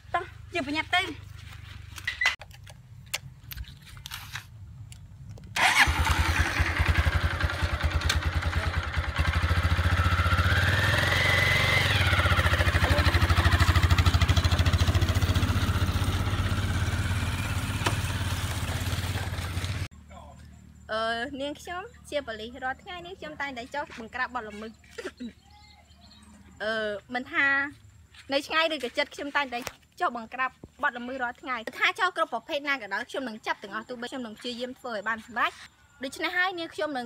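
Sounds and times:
motorcycle engine: 0:05.4 - 0:20.7.

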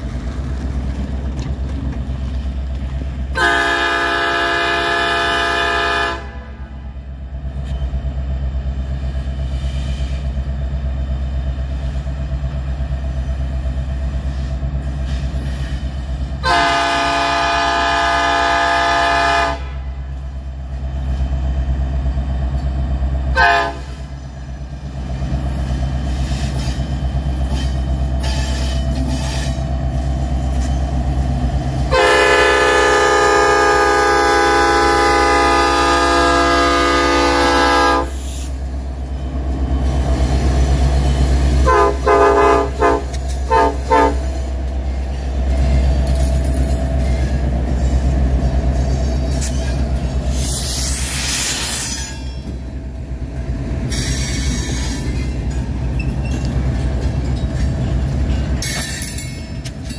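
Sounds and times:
diesel locomotive rumble: 0:00.0 - 0:59.9
locomotive air horn: 0:03.3 - 0:06.8, 0:16.4 - 0:20.0, 0:23.3 - 0:24.1, 0:31.8 - 0:38.5, 0:41.6 - 0:44.5.

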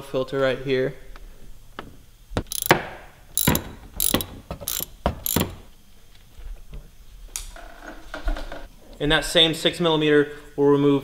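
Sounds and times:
ratchet wrench clicking: 0:02.5 - 0:02.8, 0:03.4 - 0:05.7.

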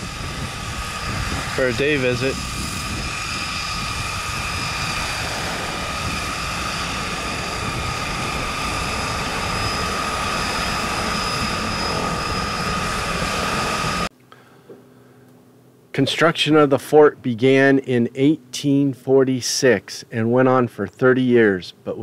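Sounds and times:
propeller engine running: 0:00.0 - 0:14.1.

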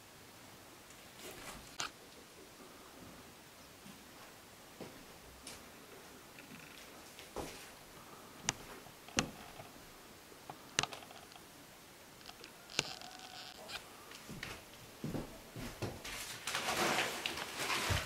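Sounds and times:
sharp clicks and knocks: 0:08.5 - 0:09.8, 0:10.5 - 0:11.4.

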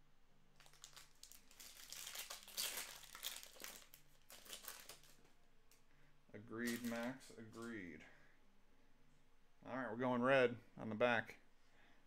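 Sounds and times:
wrapper crinkling and tearing: 0:00.6 - 0:05.3, 0:06.6 - 0:07.2.

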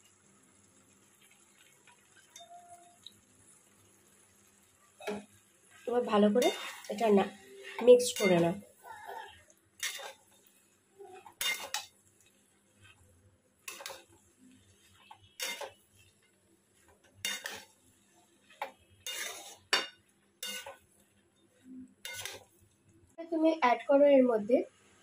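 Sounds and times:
metal spatula scraping metal pan: 0:06.0 - 0:10.4, 0:11.1 - 0:11.9, 0:13.6 - 0:16.2, 0:17.2 - 0:17.7, 0:18.5 - 0:20.8, 0:22.0 - 0:22.5.

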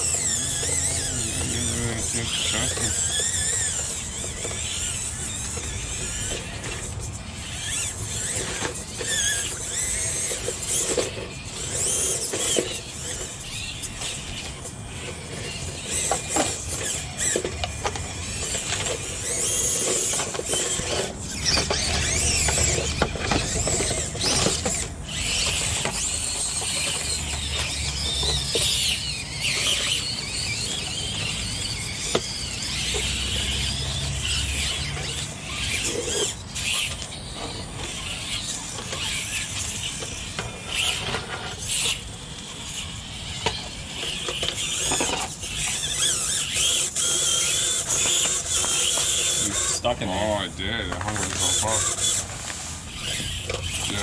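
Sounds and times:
small electric motors whining: 0:00.0 - 0:54.0
tyres knocking against rocks: 0:16.0 - 0:28.9.

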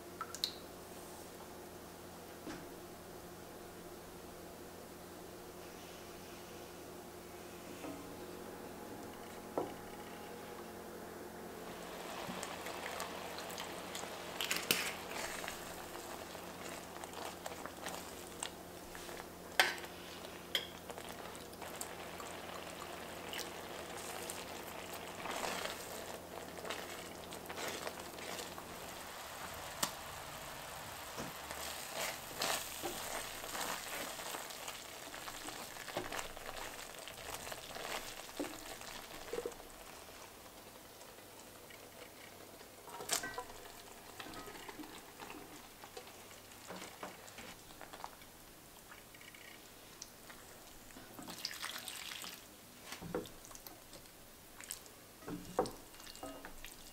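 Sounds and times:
thick sauce bubbling: 0:11.7 - 0:42.1, 0:42.9 - 0:52.5.

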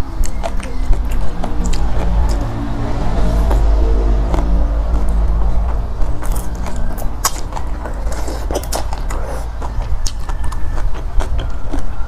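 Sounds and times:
low steady hum: 0:00.0 - 0:12.0
chewing with wet mouth smacks: 0:06.2 - 0:12.0.

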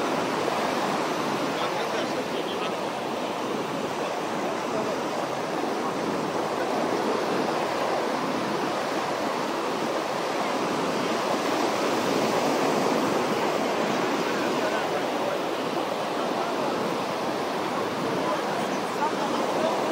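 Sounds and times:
ocean surf washing onto beach: 0:00.0 - 0:19.9.

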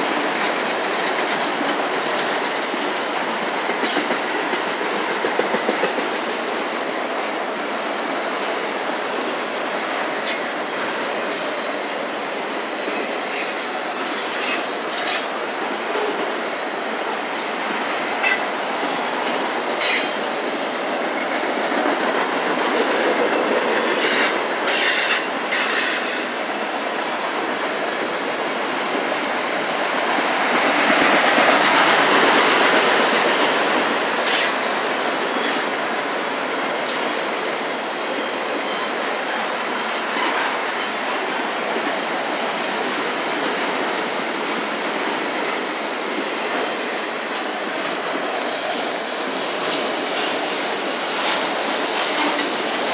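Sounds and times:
steel wheels rolling on rail: 0:00.0 - 0:52.9.

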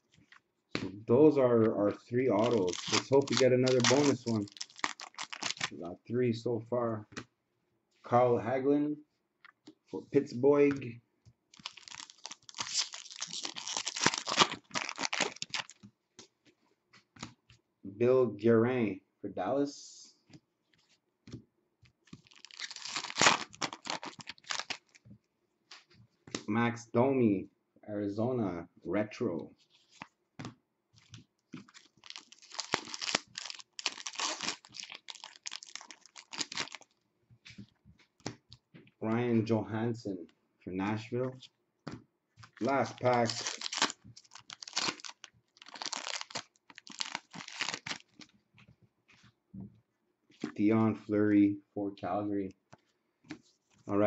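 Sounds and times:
foil wrapper tearing and crinkling: 0:02.3 - 0:05.7, 0:11.6 - 0:15.8, 0:22.1 - 0:25.0, 0:31.6 - 0:36.9, 0:42.6 - 0:48.3.

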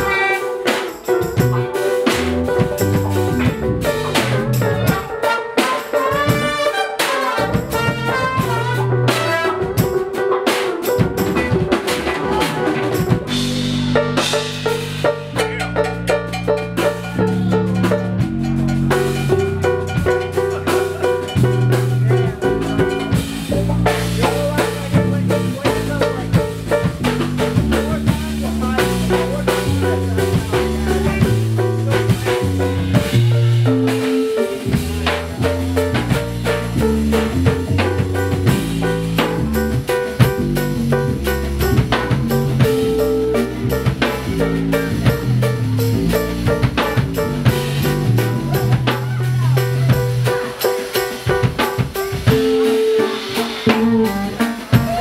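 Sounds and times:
saxophone: 0:00.0 - 0:00.9, 0:03.3 - 0:13.8, 0:52.3 - 0:55.0
electric guitar: 0:00.0 - 0:06.5, 0:07.4 - 0:28.2
drum kit: 0:00.0 - 0:55.0
stepping bass line: 0:01.3 - 0:05.2, 0:07.4 - 0:10.1, 0:11.0 - 0:55.0.

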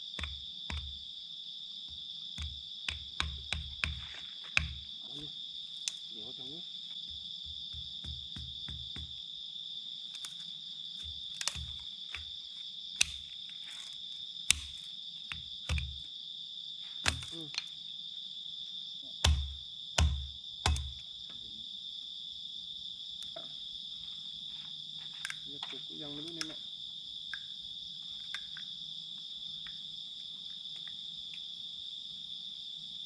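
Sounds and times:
crickets chirping: 0:00.0 - 0:33.0
machete chopping bamboo: 0:00.1 - 0:00.9, 0:02.4 - 0:04.8, 0:07.5 - 0:09.2, 0:10.1 - 0:12.4, 0:13.0 - 0:16.1, 0:17.0 - 0:17.7, 0:19.2 - 0:21.0.

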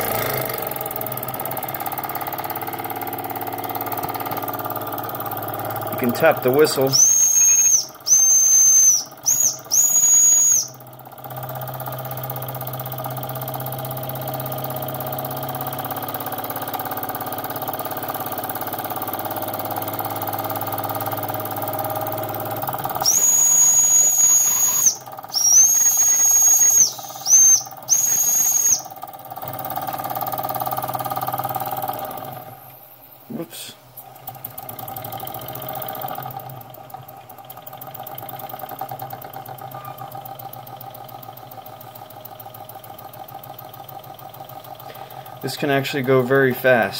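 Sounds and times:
toy steam engine humming: 0:05.9 - 0:10.8, 0:21.6 - 0:29.1
high-pitched steam whistle toots: 0:06.8 - 0:10.8, 0:23.0 - 0:29.0.

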